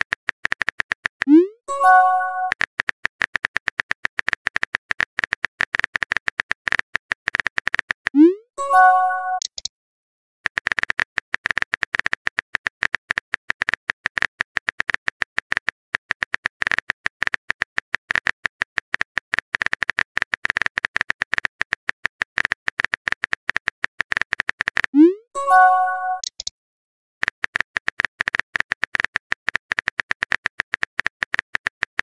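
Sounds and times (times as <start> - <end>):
keyboard typing clicks: 0.4 - 3.4, 4.2 - 9.7, 12.8 - 26.5.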